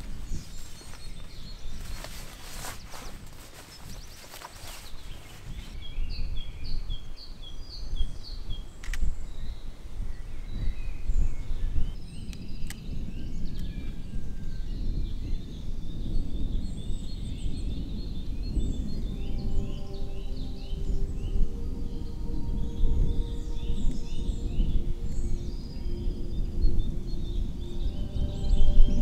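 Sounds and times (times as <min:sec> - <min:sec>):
soft held music tone: 0:00.0 - 0:05.8, 0:17.8 - 0:29.0
low rumbling noise: 0:00.0 - 0:29.0
songbirds chirping: 0:00.0 - 0:29.0
sharp clicks: 0:08.8 - 0:09.1.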